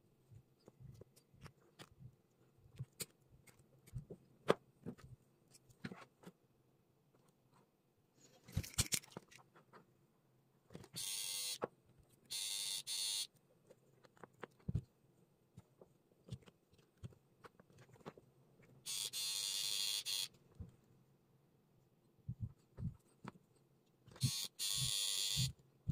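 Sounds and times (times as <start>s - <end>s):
clicks and taps of small parts: 2.7s - 6.4s, 8.5s - 9.9s, 13.6s - 14.9s.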